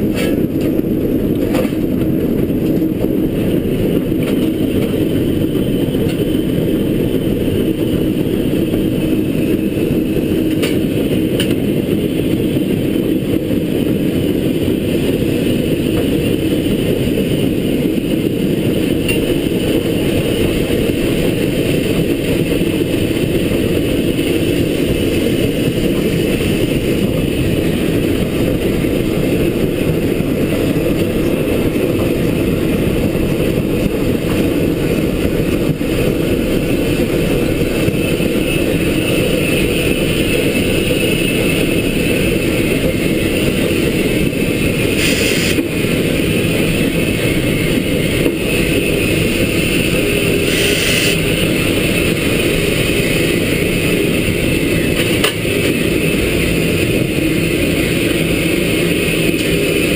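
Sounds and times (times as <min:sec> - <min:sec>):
steam locomotive exhaust rumble: 0:00.0 - 0:59.9
steam hiss bursts: 0:45.0 - 0:45.6, 0:50.4 - 0:51.3.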